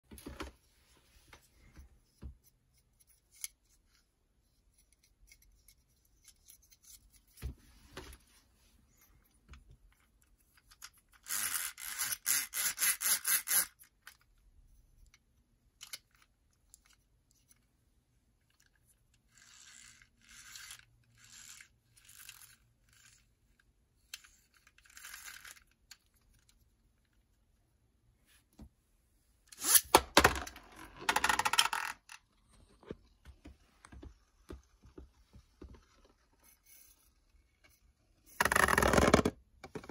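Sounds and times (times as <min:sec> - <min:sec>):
spinning top clattering in plastic basin: 0:29.6 - 0:32.2, 0:38.3 - 0:39.9.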